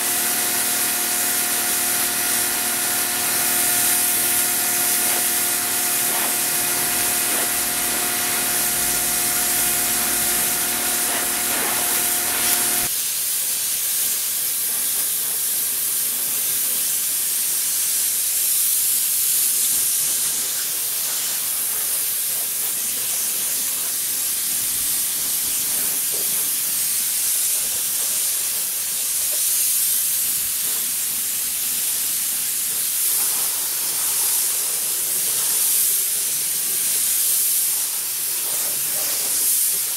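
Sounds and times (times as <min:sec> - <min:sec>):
steady whine: 0:00.0 - 0:12.9
pressure washer spray hissing: 0:00.0 - 0:14.0, 0:18.4 - 0:39.9.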